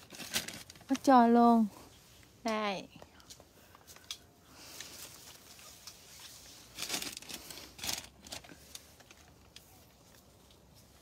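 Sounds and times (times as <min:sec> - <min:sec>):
leaves and twigs rustling: 0:00.0 - 0:11.0.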